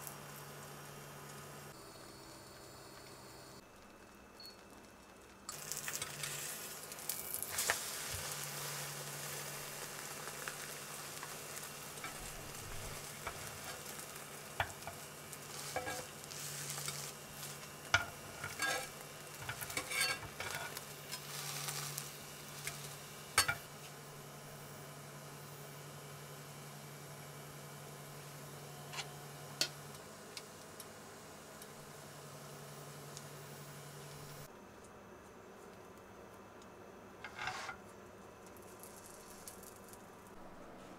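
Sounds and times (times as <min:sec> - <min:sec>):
egg sizzling in a pan: 0:00.0 - 0:34.5, 0:37.2 - 0:40.4
utensils scraping a pan: 0:11.2 - 0:23.6, 0:37.2 - 0:37.8.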